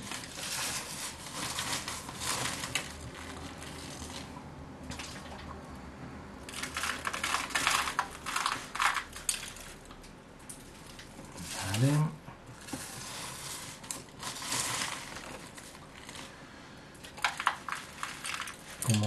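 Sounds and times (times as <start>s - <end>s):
paper rustling: 0.0s - 4.4s, 12.6s - 16.4s.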